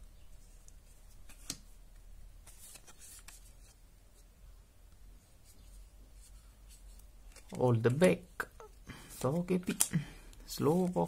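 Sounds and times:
cards rustling and ticking: 0.4 - 3.8, 6.6 - 11.0.

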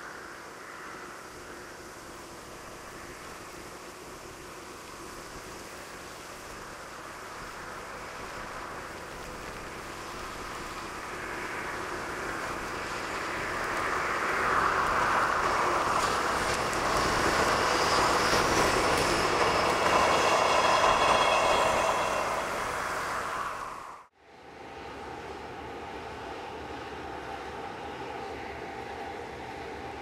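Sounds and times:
train wheels rumbling on rail: 1.3 - 24.1
faint high ringing from wheels: 15.2 - 24.1.

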